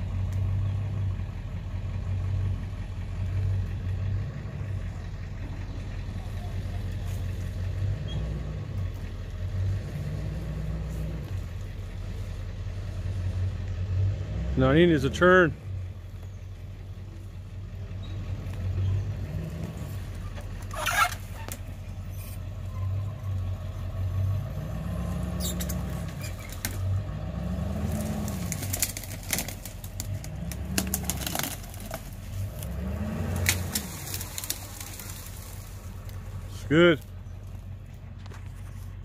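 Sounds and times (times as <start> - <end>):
vehicle engine revving: 0.0 - 39.0
crackles: 24.9 - 39.0.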